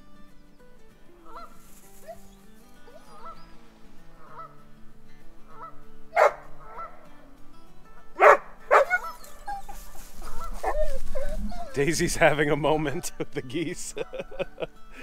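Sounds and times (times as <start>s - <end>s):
geese honking: 1.2s - 2.2s, 2.8s - 7.3s, 8.2s - 13.2s.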